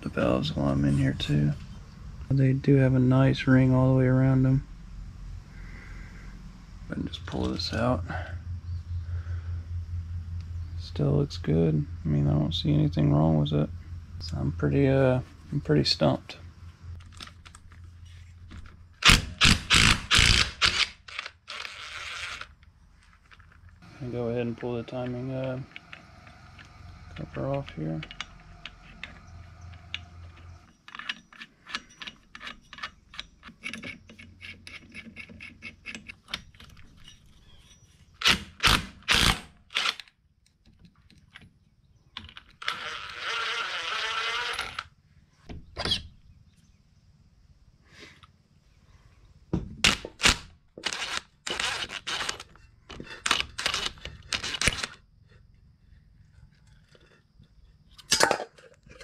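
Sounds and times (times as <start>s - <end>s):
small metal clicks and clinks: 27.6s - 37.9s.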